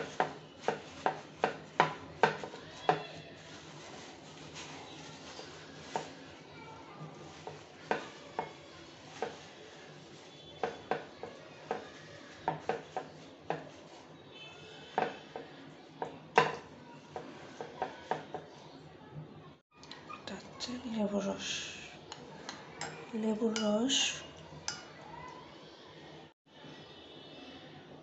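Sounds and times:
paper towel rustling: 0.0 - 14.2.

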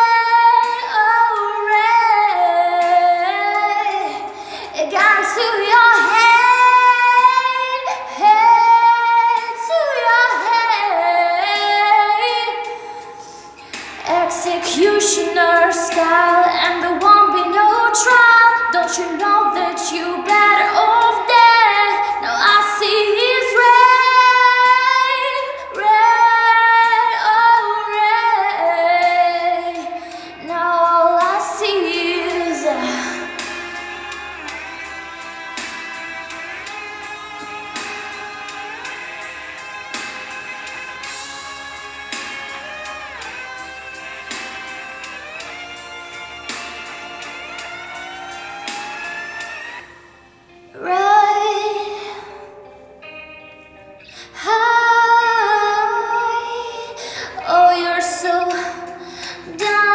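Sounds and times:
young woman singing solo: 14.0 - 33.8.

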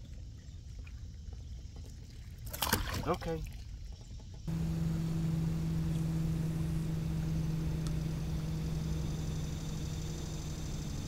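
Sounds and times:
faint rumble: 4.0 - 11.0
small motor humming: 4.5 - 11.0.

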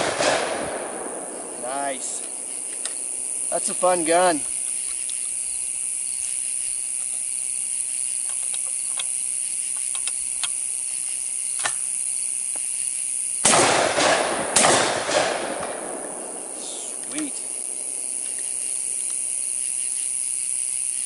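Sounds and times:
shotgun shots: 0.0 - 3.2, 13.4 - 17.8
crickets trilling: 0.0 - 21.0
shotgun shells clicking: 8.2 - 10.6.

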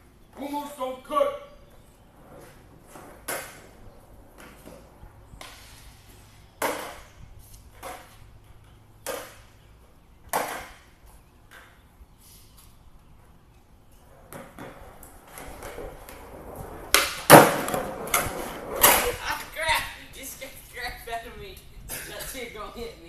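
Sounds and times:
skateboard clacking on concrete: 2.1 - 5.8, 6.6 - 11.9, 14.0 - 19.6.

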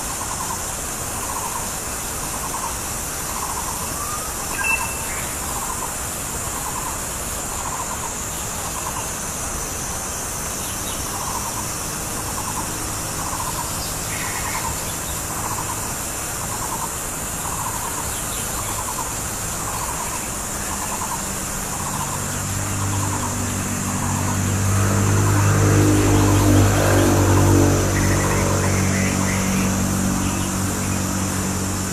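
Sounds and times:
steady high hiss: 0.0 - 26.5
vehicle engine: 8.1 - 31.9.

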